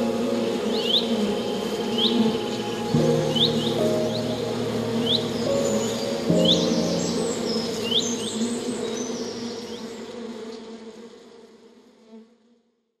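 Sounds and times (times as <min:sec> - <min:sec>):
honeybees buzzing: 0:00.0 - 0:12.4
bird chirps: 0:00.6 - 0:09.4.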